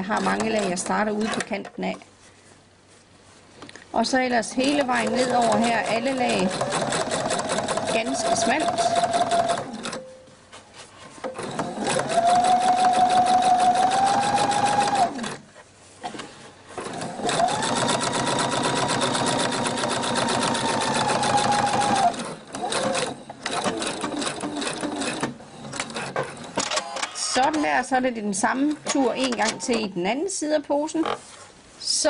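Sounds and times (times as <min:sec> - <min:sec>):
sewing machine motor whine: 0:04.6 - 0:10.0, 0:11.4 - 0:15.4, 0:17.0 - 0:25.2.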